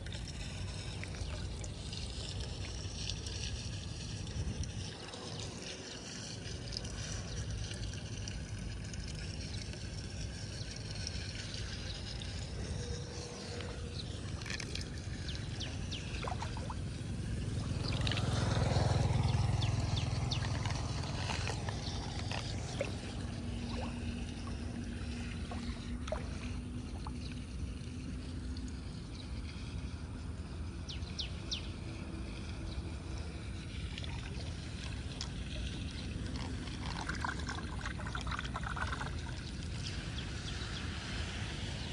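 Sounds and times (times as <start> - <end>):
foot stirring water: 0.0 - 27.7
floodwater draining down storm drain: 0.0 - 41.9.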